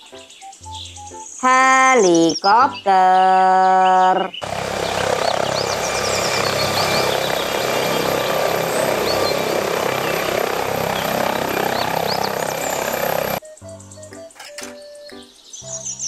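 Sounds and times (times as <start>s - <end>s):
birds chirping faintly: 0.0s - 16.0s
helicopter hovering: 4.3s - 13.4s.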